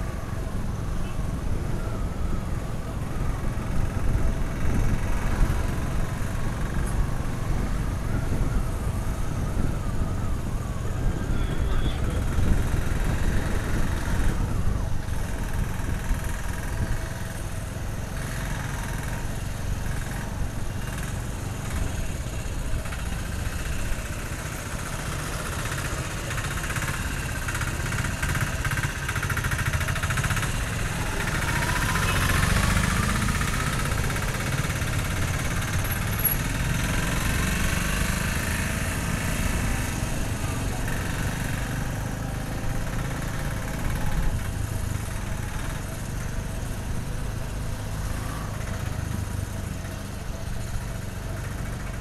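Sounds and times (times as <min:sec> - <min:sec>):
motorcycle engine running: 0:00.0 - 0:52.0.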